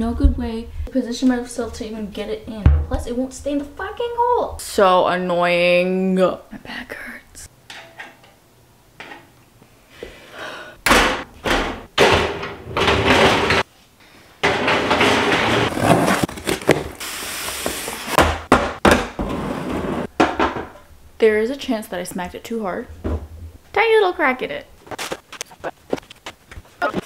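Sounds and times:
plastic drawers rattling and sliding: 11.5s - 13.7s, 14.4s - 17.0s
steel cart parts clattering: 12.0s - 13.7s, 14.4s - 15.9s.

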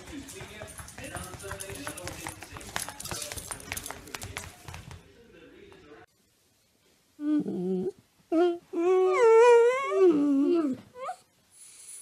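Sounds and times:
dog whining: 7.2s - 11.3s.

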